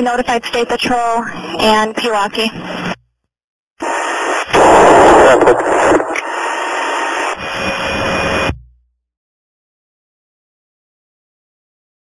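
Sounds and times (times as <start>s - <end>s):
radio static hiss: 0.0s - 3.0s, 3.8s - 8.6s.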